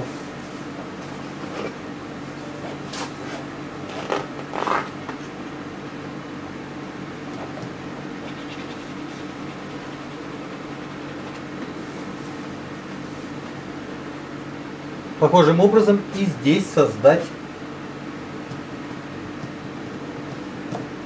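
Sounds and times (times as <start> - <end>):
steady low hum: 0.0 - 21.0
painting tool scraping canvas: 2.7 - 5.0, 8.2 - 12.5.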